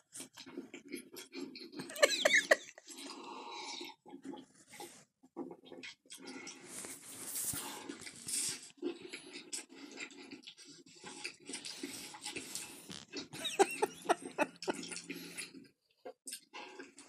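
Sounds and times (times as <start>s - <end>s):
person chewing and slurping: 5.4s - 17.0s.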